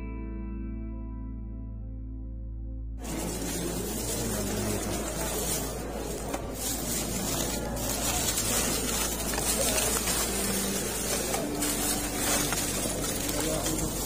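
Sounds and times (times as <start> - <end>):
bags rustling and handling: 3.0 - 14.0
hubbub of people: 3.0 - 14.0.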